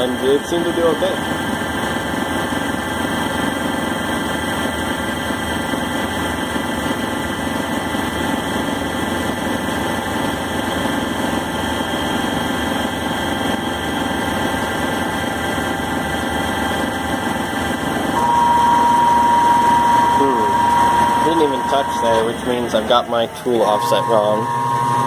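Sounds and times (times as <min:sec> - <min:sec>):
lathe motor hum and whine: 0:00.0 - 0:25.0
whistle-like tone: 0:18.2 - 0:22.8, 0:23.6 - 0:25.0.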